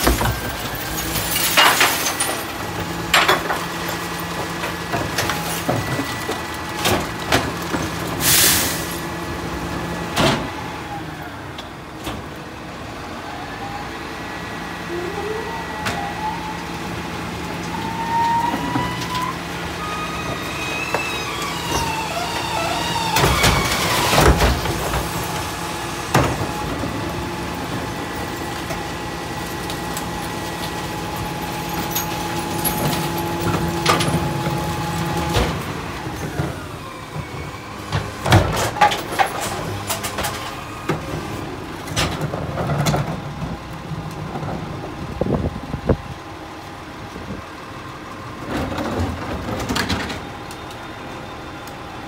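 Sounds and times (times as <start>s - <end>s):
garbage truck idling: 0.0s - 52.0s
hydraulic whine: 17.6s - 28.8s.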